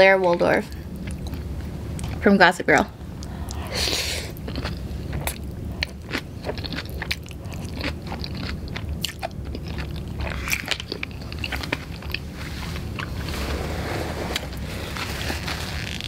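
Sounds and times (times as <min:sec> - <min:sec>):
steady low hum: 0:00.0 - 0:16.0
chewing noodles: 0:00.7 - 0:02.3, 0:03.2 - 0:13.6.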